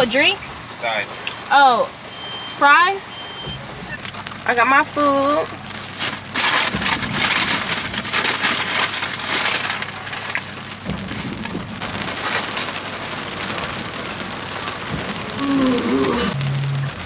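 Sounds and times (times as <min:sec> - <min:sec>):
rain on a car: 0:00.0 - 0:17.0
plastic bag rustling: 0:05.5 - 0:16.4.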